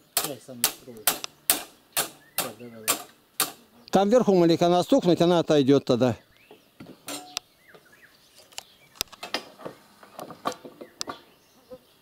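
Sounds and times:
faint bird chirps: 0.0s - 3.0s, 6.1s - 12.0s.

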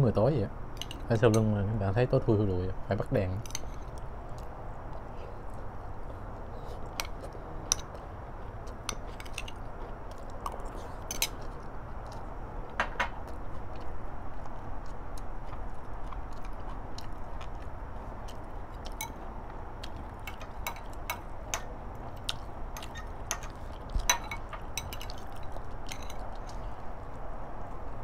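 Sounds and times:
utensil clinking on glass bowl: 20.3s - 21.7s, 22.8s - 25.2s, 25.9s - 26.2s.

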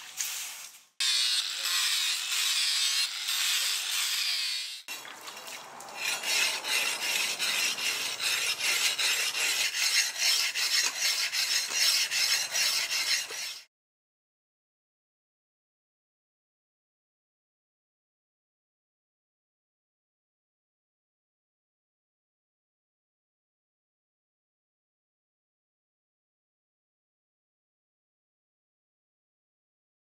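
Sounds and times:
blade rubbing on whetstone: 1.0s - 4.9s, 5.9s - 13.7s.

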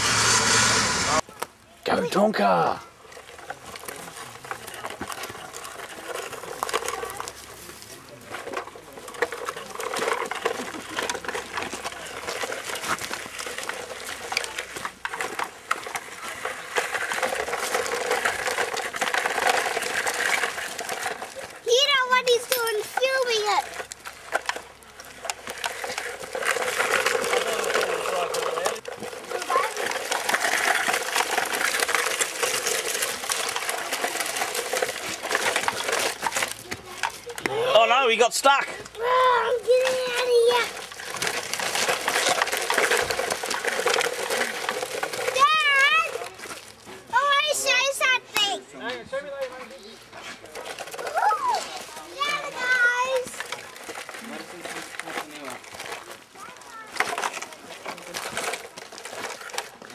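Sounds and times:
toy wheels scraping over dirt: 0.0s - 59.9s.

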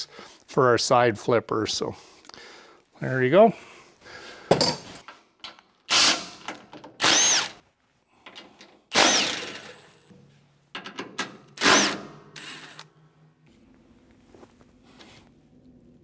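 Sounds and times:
impact driver bursts: 5.9s - 7.6s, 8.9s - 10.0s, 11.6s - 12.9s.

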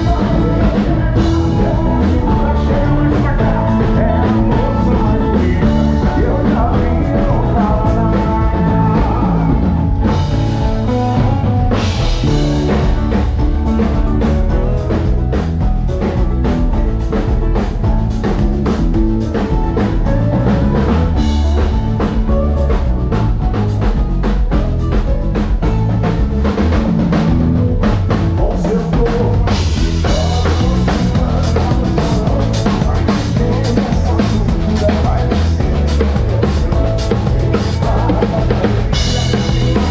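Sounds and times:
man singing: 0.0s - 13.2s, 19.2s - 23.6s, 28.1s - 39.9s
acoustic guitar: 0.0s - 39.9s
drum kit beat: 0.0s - 39.9s
keyboard: 0.0s - 39.9s.

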